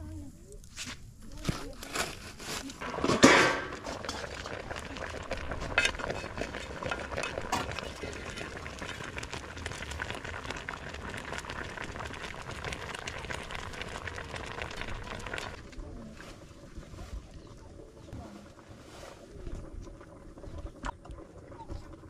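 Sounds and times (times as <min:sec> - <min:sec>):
liquid boiling and bubbling: 0:00.0 - 0:22.0
metal lid clattering on pan: 0:03.0 - 0:04.5.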